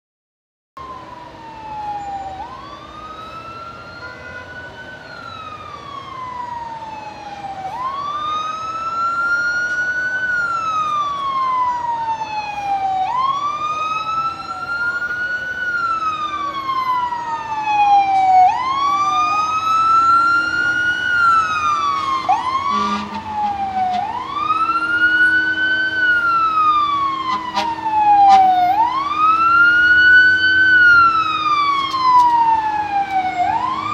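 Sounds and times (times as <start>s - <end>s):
fire engine siren wailing: 0.8s - 33.9s.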